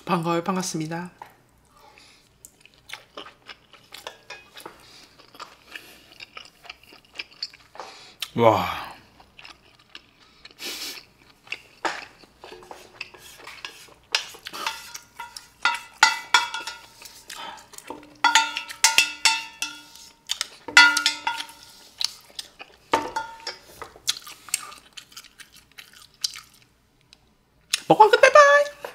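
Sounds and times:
spoon scraping a steel pan: 0:12.5 - 0:17.2, 0:18.0 - 0:21.9
pan ringing metallic tone: 0:14.6 - 0:17.0, 0:18.0 - 0:20.1, 0:20.7 - 0:21.8.

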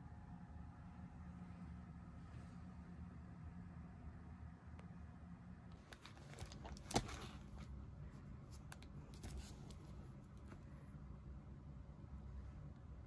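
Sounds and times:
plastic packaging crinkling: 0:05.9 - 0:07.6.

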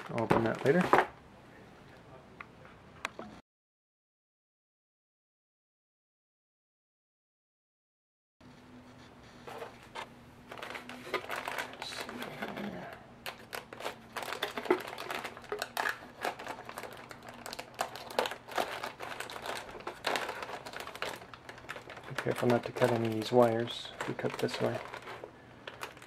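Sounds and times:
plastic bag crinkling: 0:00.0 - 0:01.1, 0:09.5 - 0:26.0.

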